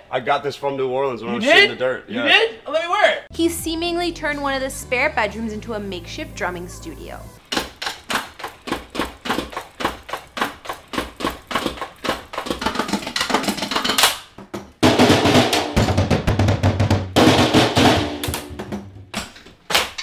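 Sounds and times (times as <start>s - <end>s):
electronic drum kit played: 3.3s - 7.6s, 14.8s - 19.1s.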